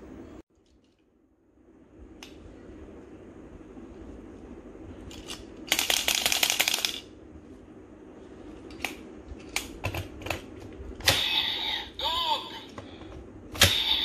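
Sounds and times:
plastic toys rattling: 5.1 - 7.1.

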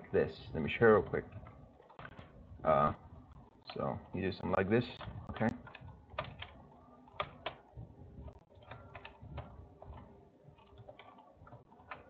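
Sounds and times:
keyboard and mouse clicks: 5.0 - 12.0.

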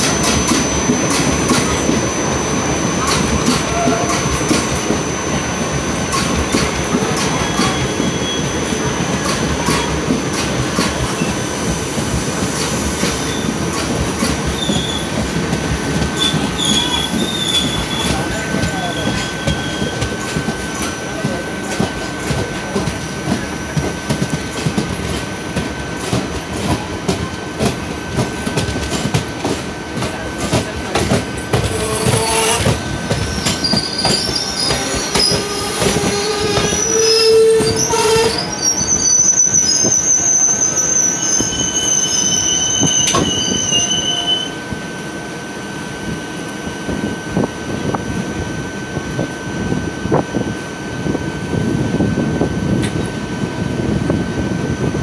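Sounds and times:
train wheels rumbling on rails: 0.0 - 55.0
high-pitched wheel squeal: 16.2 - 20.1, 31.7 - 44.6.

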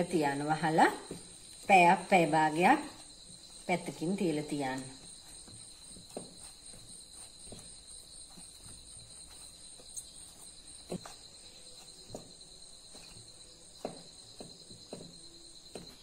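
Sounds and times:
dough knocking against a bowl: 13.7 - 16.0.

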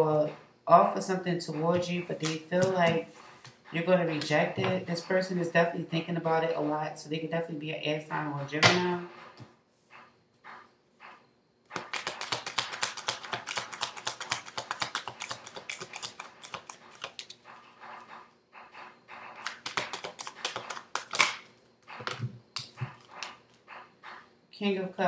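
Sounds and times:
cards being shuffled: 11.8 - 17.3, 19.4 - 21.5.

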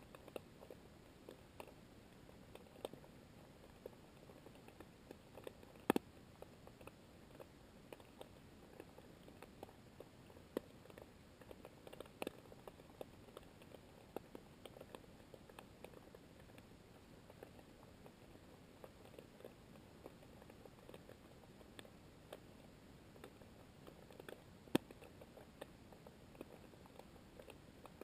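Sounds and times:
quiet hiss: 0.0 - 28.0
underwater clicks and ticks: 3.7 - 16.7.

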